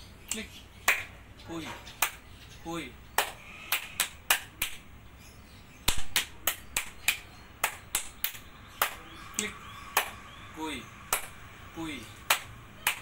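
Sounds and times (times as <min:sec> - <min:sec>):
hand claps thigh slaps and snaps: 0:00.3 - 0:01.2, 0:02.0 - 0:02.2, 0:03.2 - 0:04.9, 0:05.8 - 0:09.0, 0:09.9 - 0:10.2, 0:11.1 - 0:11.4, 0:12.3 - 0:13.0.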